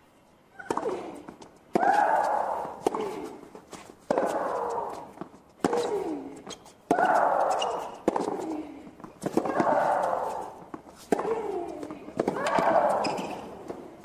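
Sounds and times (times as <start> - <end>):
tennis ball hit by racket: 0.6 - 3.3, 4.0 - 6.0, 6.9 - 8.6, 9.2 - 13.8
player shrieking: 9.5 - 10.5.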